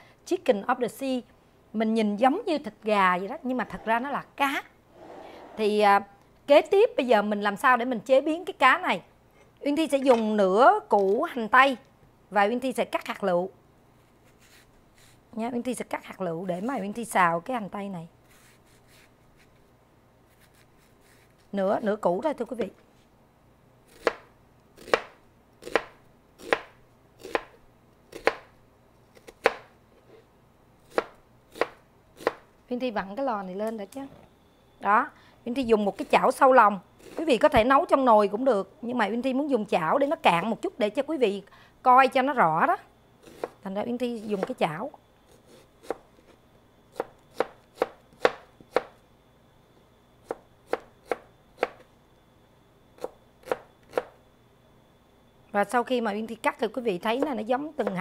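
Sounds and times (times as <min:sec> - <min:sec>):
knife chopping onion on board: 0:24.8 - 0:28.5, 0:29.2 - 0:29.7, 0:30.9 - 0:32.4, 0:43.2 - 0:43.6, 0:45.5 - 0:46.0, 0:46.9 - 0:49.0, 0:50.2 - 0:51.8, 0:53.0 - 0:54.1
knife chopping on cutting board: 0:29.2 - 0:29.7.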